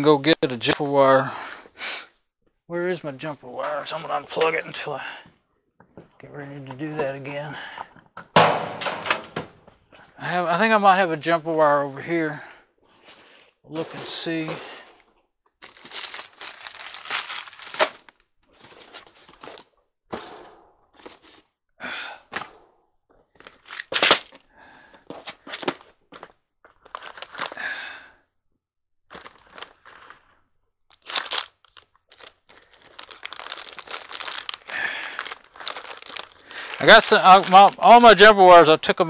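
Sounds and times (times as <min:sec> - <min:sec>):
rustling and crinkling: 0:15.6 - 0:19.8, 0:25.1 - 0:27.6, 0:29.1 - 0:38.7.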